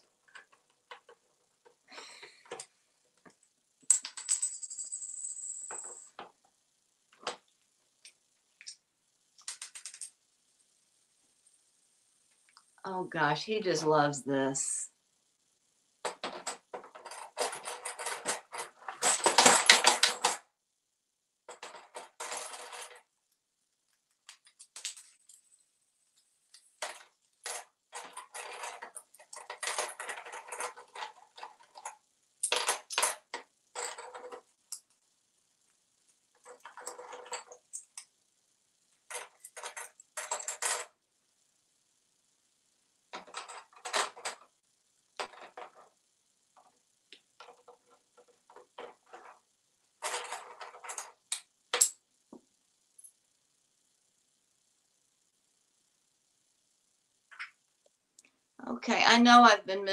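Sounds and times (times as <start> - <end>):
coins clinking on a countertop: 3.8 - 6.4, 9.4 - 10.2, 16.0 - 20.4, 21.5 - 23.1, 24.3 - 25.6, 26.5 - 34.8, 36.4 - 38.1, 39.0 - 41.0, 43.2 - 44.5, 45.2 - 46.0, 47.4 - 49.4, 50.0 - 52.0.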